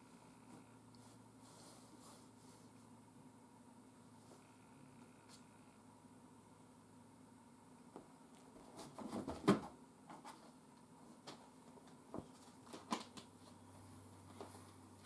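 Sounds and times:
cat bumping cardboard boxes: 0:08.6 - 0:10.4.

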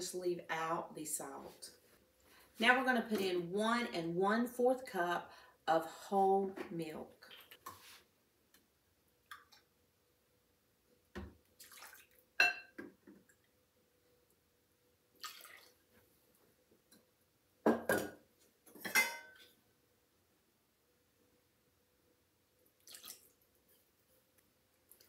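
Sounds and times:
milk pouring and splashing: 0:11.6 - 0:12.4, 0:15.2 - 0:15.9, 0:22.7 - 0:23.7.

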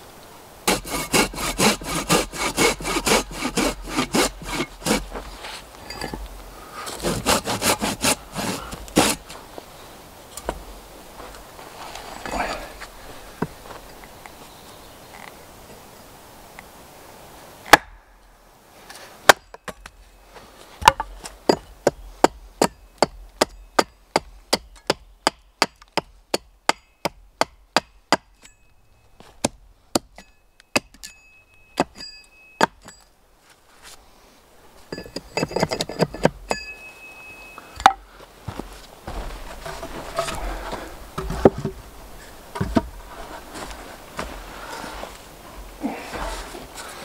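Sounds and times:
rustling and scraping: 0:00.7 - 0:14.5, 0:32.8 - 0:37.0, 0:37.6 - 0:47.0
faint metallic ring: 0:05.8 - 0:06.3, 0:28.3 - 0:29.3, 0:30.1 - 0:33.2, 0:34.9 - 0:38.0
axe chopping wood: 0:17.7 - 0:18.0, 0:20.8 - 0:28.3.

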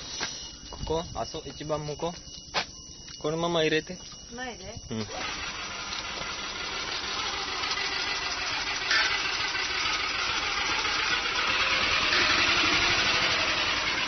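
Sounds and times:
golf cart motor running: 0:05.0 - 0:14.0.

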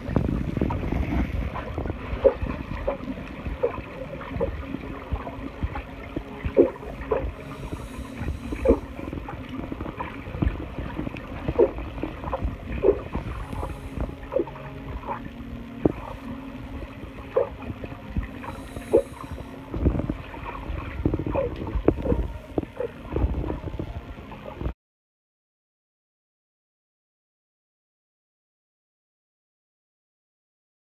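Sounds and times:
steady low hum: 0:00.0 - 0:24.8
underwater bubbles gurgling: 0:00.0 - 0:24.8.

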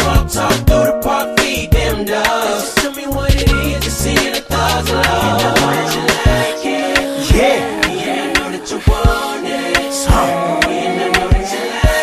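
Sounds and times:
sliding melody line: 0:03.6 - 0:12.0.

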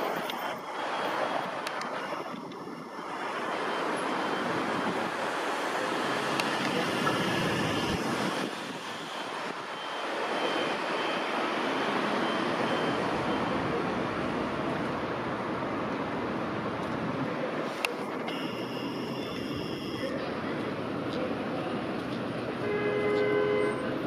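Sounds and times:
city street traffic: 0:00.0 - 0:24.0
faint high whine: 0:18.0 - 0:20.3.

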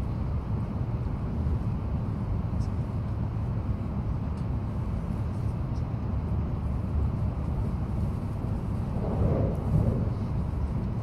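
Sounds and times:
train cabin rumble: 0:06.0 - 0:11.0.

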